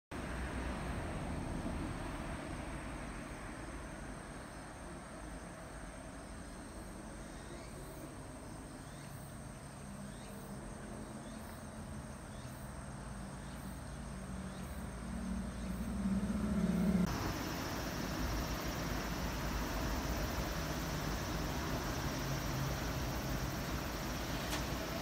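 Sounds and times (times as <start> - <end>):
high insect trill: 0.3 - 25.0
vehicle engine: 13.6 - 25.0
steady rushing noise: 17.0 - 25.0.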